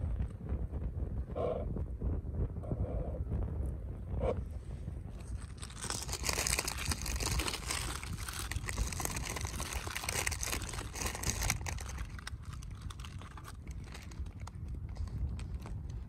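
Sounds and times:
snack wrapper crinkling: 5.2 - 15.8.

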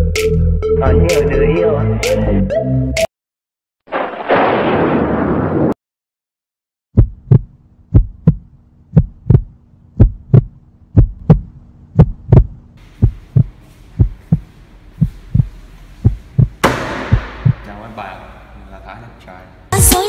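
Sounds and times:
heartbeat thumps: 7.0 - 17.7
low steady hum: 7.3 - 19.7.

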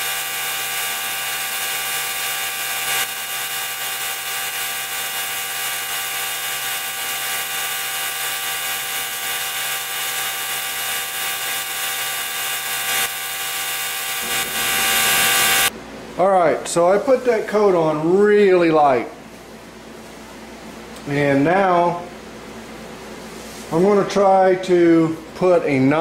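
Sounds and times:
spray gun hissing: 0.0 - 15.7.

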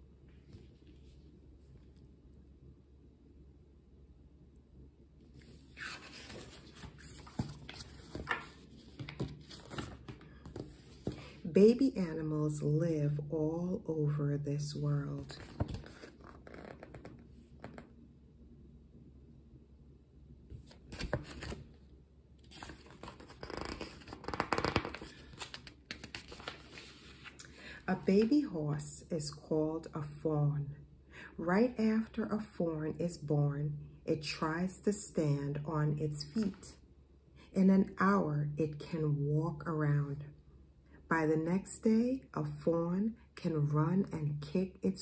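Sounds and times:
book pages rustling: 5.4 - 11.5, 15.2 - 17.9, 20.5 - 21.8, 22.4 - 28.5.

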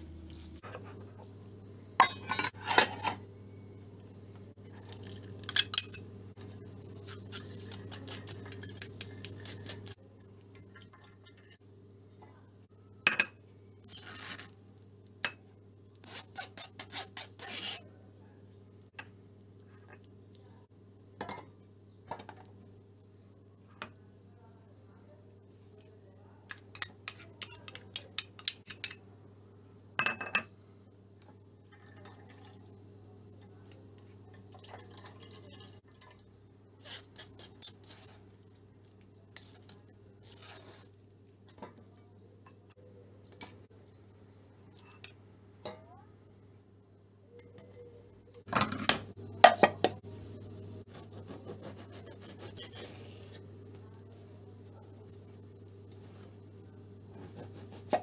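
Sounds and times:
low steady hum: 0.0 - 16.0
spoon and bowl clinking on sieve: 2.0 - 3.2, 26.5 - 29.0.

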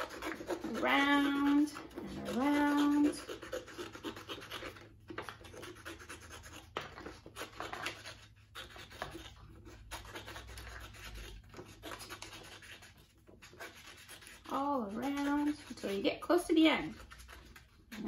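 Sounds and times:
scissors snipping paper: 0.0 - 16.0, 16.8 - 18.0.

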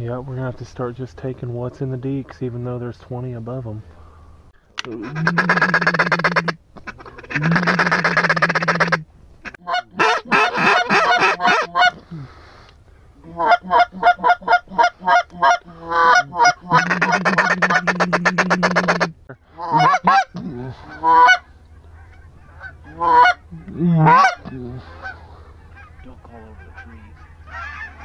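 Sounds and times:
duck call quacks: 4.8 - 12.0, 13.2 - 28.0
duck call rolling chatter: 4.8 - 12.0, 13.3 - 28.0.

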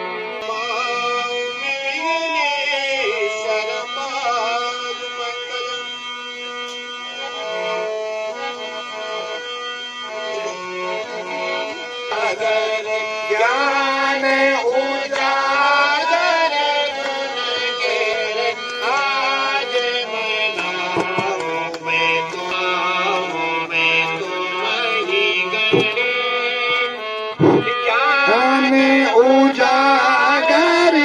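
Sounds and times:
harmonium melody: 0.0 - 31.0
tabla drumming: 20.9 - 21.6, 25.7 - 26.0.

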